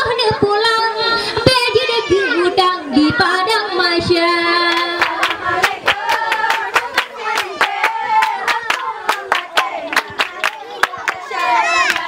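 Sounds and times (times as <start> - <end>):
girl singing into a microphone: 0.0 - 5.0.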